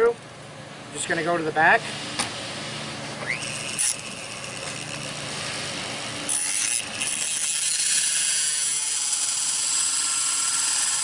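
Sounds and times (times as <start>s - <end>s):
rotary tool whining: 2.1s - 11.0s
cutoff wheel grinding steel: 3.2s - 11.0s.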